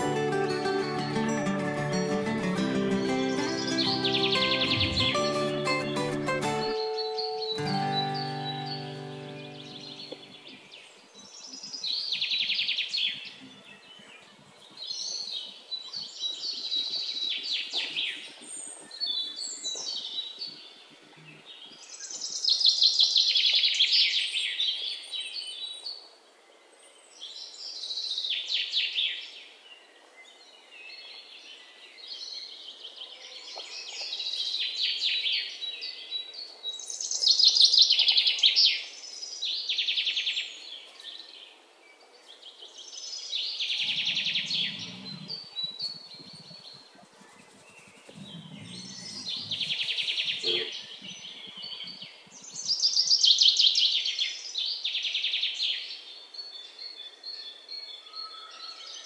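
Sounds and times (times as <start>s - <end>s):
birds chirping and trilling: 0.0s - 14.1s, 43.0s - 59.0s.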